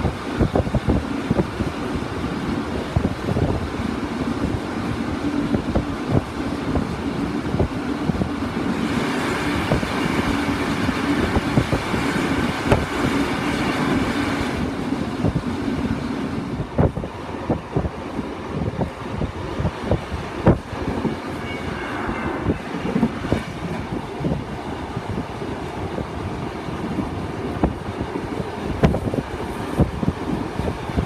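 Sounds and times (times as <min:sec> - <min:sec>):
passing train rushing: 0:00.0 - 0:31.0
train carriage rumble: 0:00.0 - 0:31.0.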